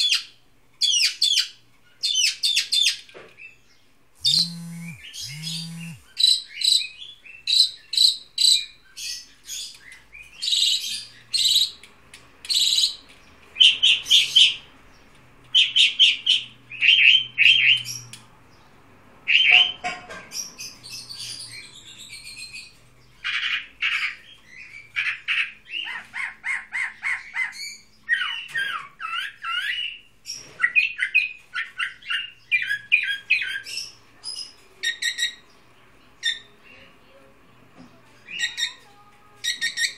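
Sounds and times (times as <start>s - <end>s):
songbird singing: 0.8s - 11.8s, 12.5s - 30.1s.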